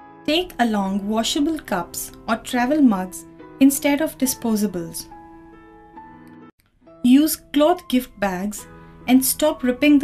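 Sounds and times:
soft background music: 0.0 - 10.0.

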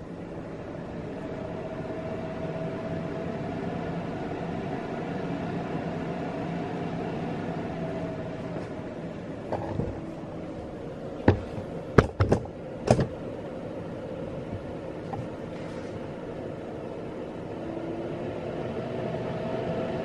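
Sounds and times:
sharp knocks: 11.2 - 13.2.

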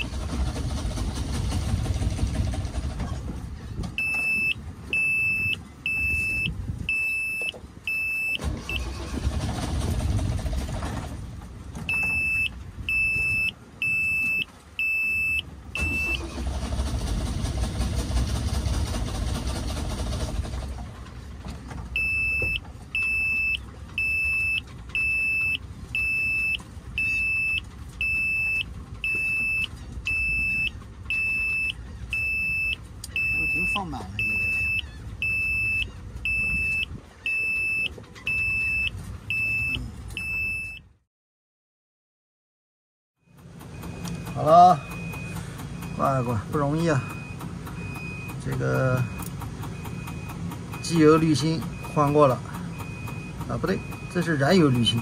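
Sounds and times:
engine cranking on starter: 0.0 - 5.0, 8.2 - 12.4, 15.7 - 27.2, 43.2 - 55.0
alarm beeping: 4.0 - 8.9, 11.9 - 16.4, 22.0 - 40.9, 43.3 - 55.0.

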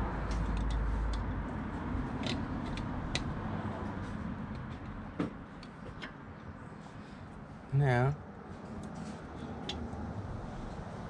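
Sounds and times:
metallic clicks and taps of tools: 0.3 - 1.3, 2.2 - 3.3.

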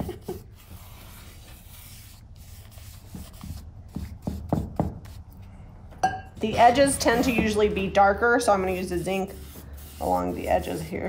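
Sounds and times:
paintbrush swishing on wood: 6.5 - 11.0.

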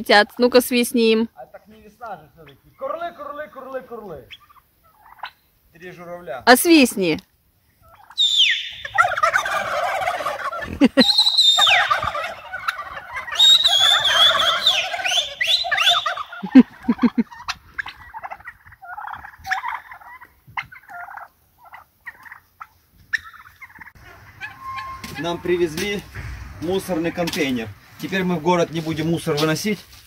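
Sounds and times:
cranes trumpeting calls: 8.0 - 16.5, 24.0 - 25.4.

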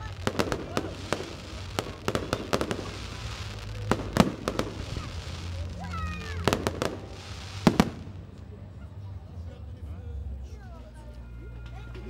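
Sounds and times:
fireworks bangs: 0.0 - 8.6.

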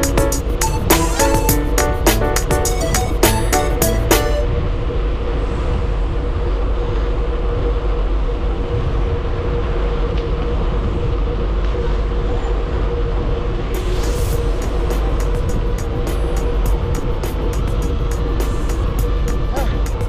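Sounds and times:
burst of music: 0.0 - 4.6, 13.8 - 20.0
vehicle riding rumble: 0.0 - 20.0.

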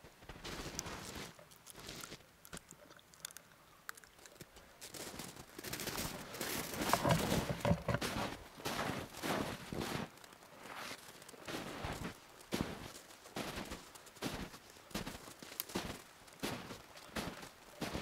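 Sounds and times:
footsteps crunching in snow: 0.0 - 2.2, 4.8 - 18.0
puppy gnawing twig crunches: 0.7 - 8.2.

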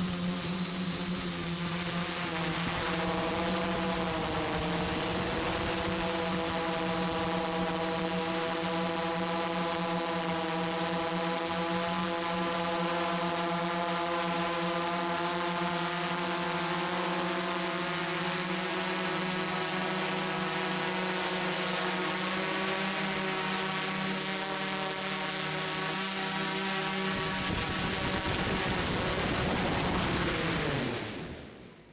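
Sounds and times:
thin high whine: 0.0 - 31.5
model aircraft propeller droning: 0.0 - 31.7.

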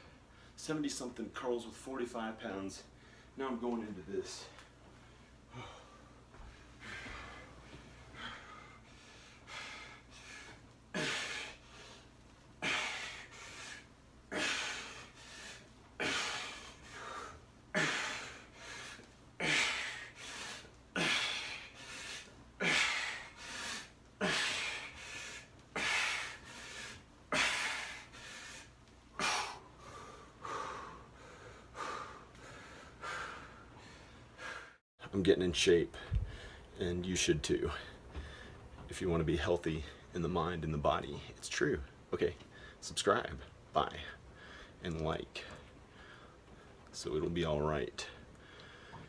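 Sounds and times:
man breathing hard: 5.0 - 34.8, 35.9 - 36.8, 37.7 - 38.8, 44.2 - 44.8, 45.4 - 46.8, 48.1 - 49.0.

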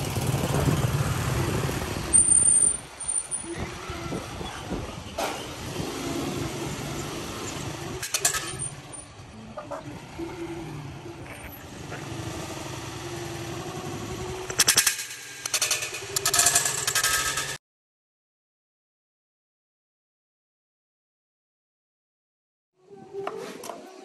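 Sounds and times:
street traffic noise: 0.0 - 17.6
metal clattering on concrete: 8.0 - 9.9, 14.5 - 17.6.

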